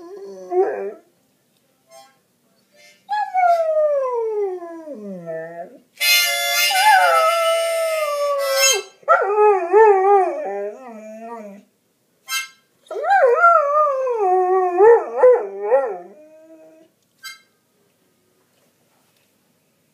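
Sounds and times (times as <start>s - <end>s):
harmonica: 1.9s - 2.2s, 6.0s - 8.9s, 12.2s - 12.6s, 17.2s - 17.6s
dog howling: 6.7s - 11.6s.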